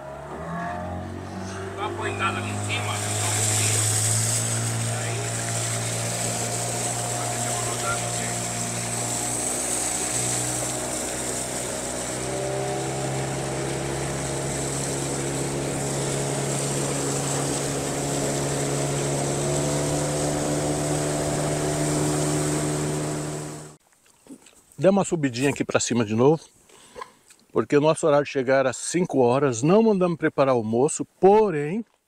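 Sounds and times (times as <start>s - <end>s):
boat motor running: 0.0s - 23.8s.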